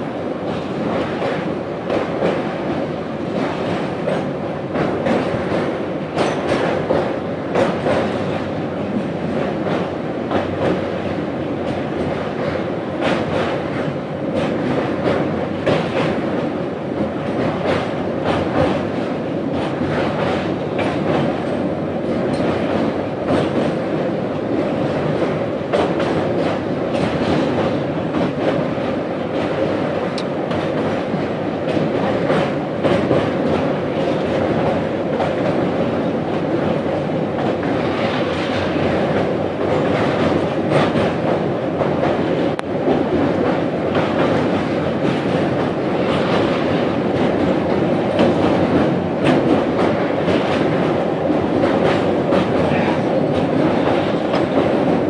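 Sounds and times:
train wheels rumbling on rails: 0.0 - 55.0
wheels clacking over rail joints: 3.4 - 10.9.

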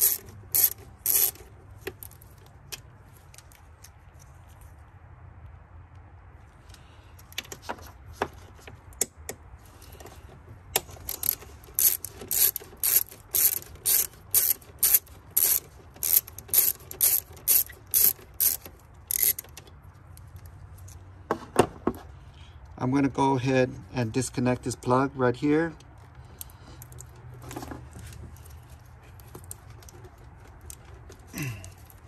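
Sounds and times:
hand ratchet clicking: 0.0 - 2.2, 10.8 - 19.6.

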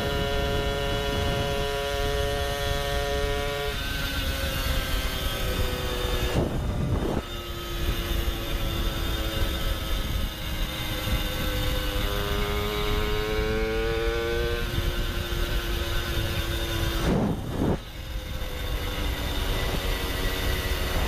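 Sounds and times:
moped two-stroke engine: 0.0 - 21.0
wind rush over microphone: 0.0 - 21.0.

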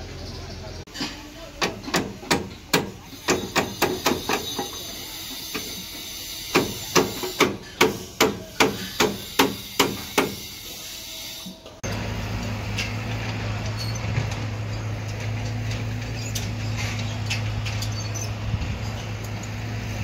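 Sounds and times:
hammer striking steel panels: 1.6 - 4.8, 6.5 - 10.5.

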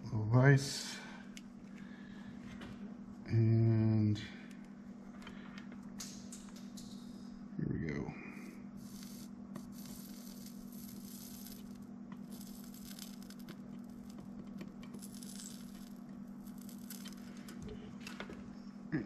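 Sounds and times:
steady low hum: 0.0 - 19.0
soldering flux sizzling: 8.3 - 17.8.

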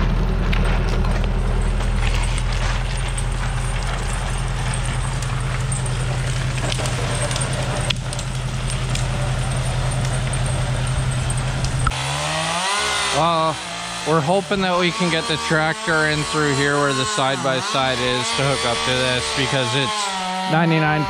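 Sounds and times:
tractor engine running: 0.0 - 21.0
branches crunching over snow: 0.8 - 15.3.

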